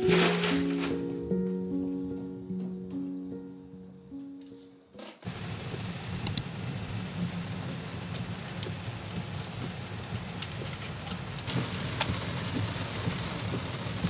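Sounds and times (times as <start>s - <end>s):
rain pattering on windshield: 5.2s - 14.0s
road rumble inside car: 5.3s - 14.0s.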